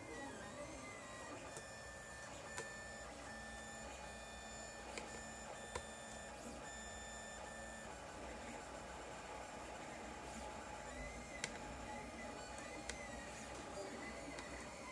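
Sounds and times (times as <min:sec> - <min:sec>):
printer stepper motors whining: 0:00.0 - 0:14.9.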